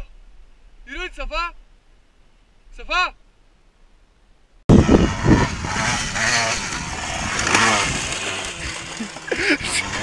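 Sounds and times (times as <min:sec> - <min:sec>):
dirt bike engine revving: 0:04.7 - 0:10.0.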